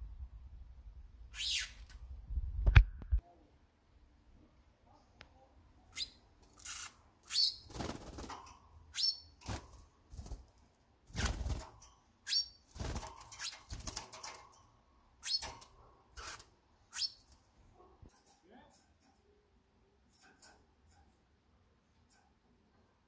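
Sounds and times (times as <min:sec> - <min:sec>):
canary chirping: 0:01.3 - 0:01.9, 0:05.9 - 0:09.7, 0:11.1 - 0:14.6, 0:15.2 - 0:17.4
bird wings fluttering: 0:07.7 - 0:08.4, 0:09.4 - 0:10.5, 0:11.1 - 0:11.8, 0:12.7 - 0:14.4.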